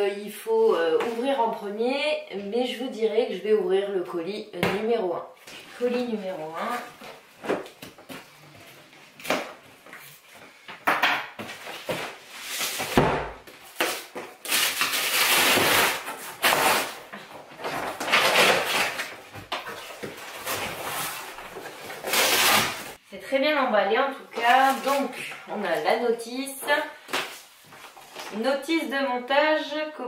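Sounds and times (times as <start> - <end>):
cardboard flaps ripping: 11.5 - 23.0
packing tape tearing: 13.6 - 23.0.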